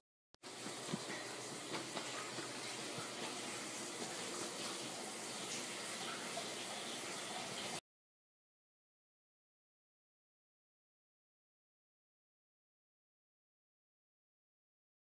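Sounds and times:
running water: 0.4 - 7.8.

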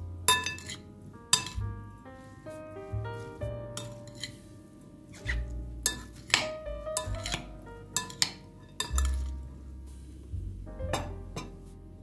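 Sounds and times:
background music with bass: 0.0 - 4.2, 5.3 - 12.0
metal spoons clinking glass bowl: 0.3 - 0.8, 1.4 - 1.6, 7.0 - 7.4, 8.0 - 9.3.

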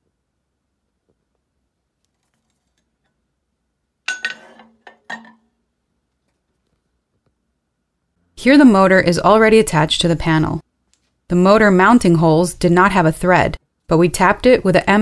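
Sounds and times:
metal plate clanking on steel: 4.1 - 5.5.

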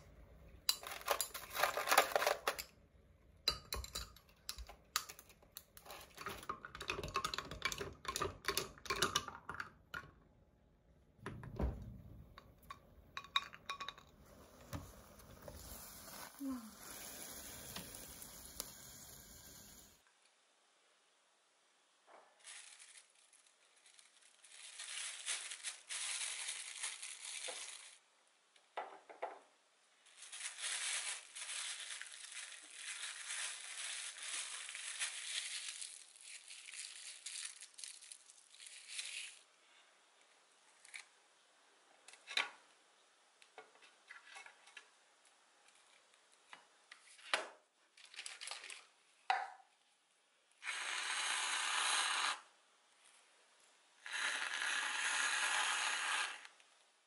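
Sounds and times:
plastic bag crinkling: 0.8 - 2.6, 22.4 - 28.0, 30.0 - 39.5
whipped cream spraying from can: 15.5 - 19.9.

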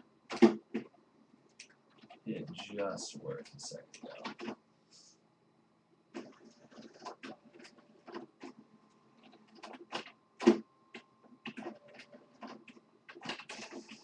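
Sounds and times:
faint printer whine: 0.0 - 14.0.

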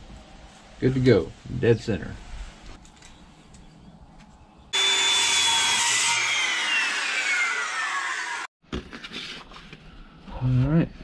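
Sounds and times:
circular saw cutting plywood: 4.8 - 8.5.

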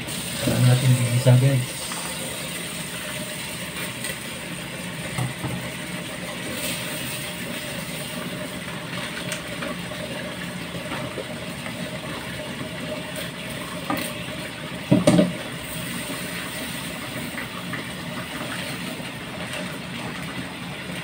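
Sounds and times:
steady mechanical hum: 0.0 - 21.0.

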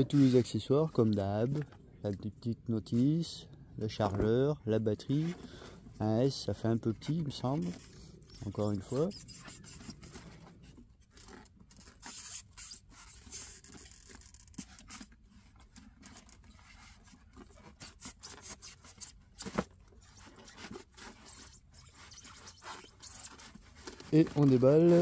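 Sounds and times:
foam box scraping and rustling: 6.7 - 25.0.

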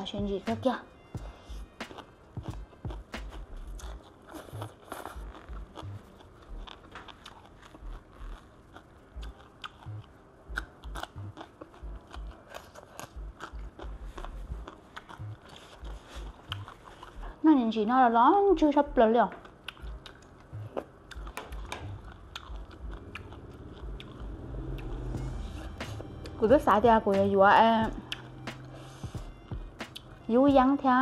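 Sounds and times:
wet chewing: 1.7 - 17.4, 19.4 - 26.4, 28.0 - 29.1.

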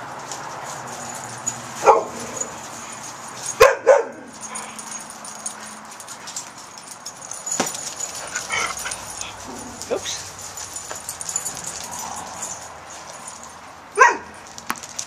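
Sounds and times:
dog barking: 1.8 - 2.5, 3.6 - 4.3, 14.0 - 14.3.

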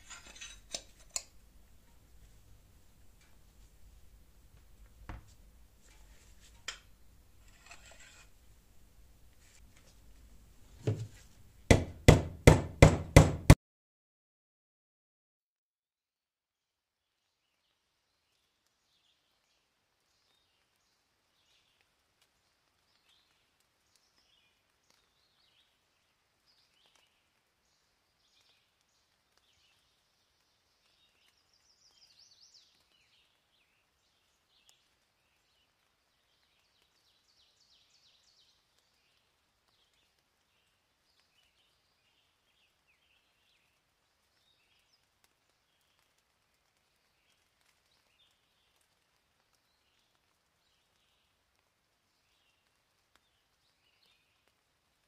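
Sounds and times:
small birds chirping: 18.1 - 46.2, 46.8 - 54.6.

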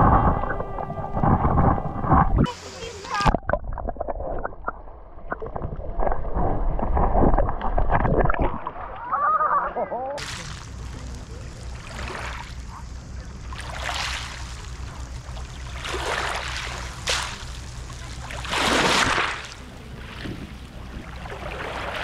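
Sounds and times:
waves lapping on pebbles: 10.2 - 22.0.

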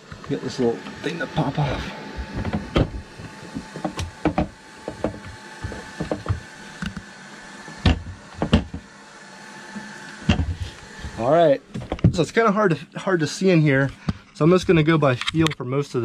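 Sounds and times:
wooden panel knocking and clattering: 3.6 - 6.4.

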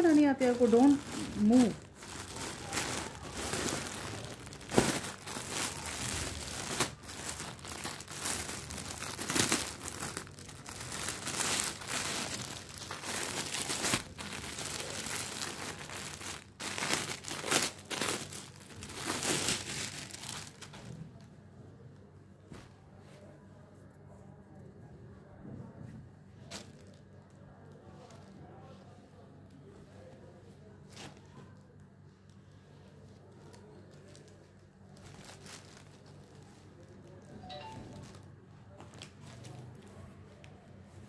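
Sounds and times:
plastic packaging crinkling: 0.0 - 21.0, 33.2 - 40.0.

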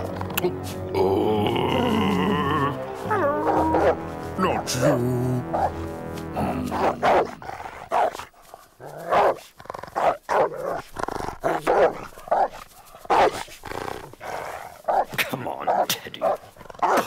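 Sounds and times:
cartoon dog barking: 3.1 - 4.0, 6.7 - 7.4, 11.6 - 12.5, 15.7 - 17.0.

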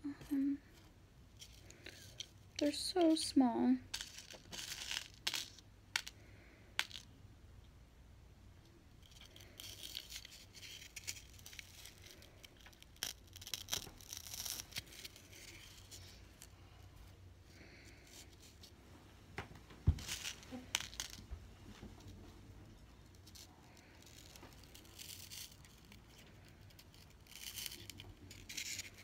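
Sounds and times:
pins crunching into foam: 9.0 - 16.5, 19.8 - 21.3.

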